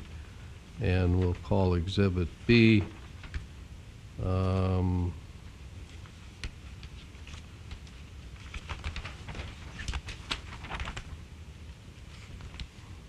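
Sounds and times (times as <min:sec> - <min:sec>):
low room hum: 0:00.0 - 0:13.0
paper sheets rustling: 0:02.6 - 0:03.4, 0:05.9 - 0:11.3
crackles and light clicks: 0:02.9 - 0:03.5, 0:05.8 - 0:12.8.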